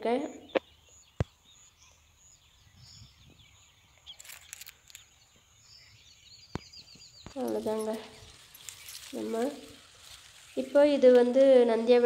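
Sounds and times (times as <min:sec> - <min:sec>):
bird chirps: 0:00.0 - 0:12.0
rustle of movement: 0:03.0 - 0:05.6, 0:06.8 - 0:12.0.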